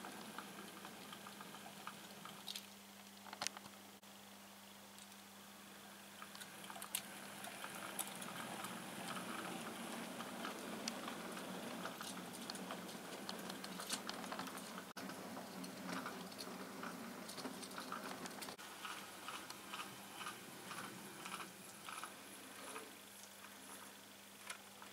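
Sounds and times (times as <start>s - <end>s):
steady low hum: 0.0s - 24.9s
model train wheels clicking: 6.2s - 24.9s.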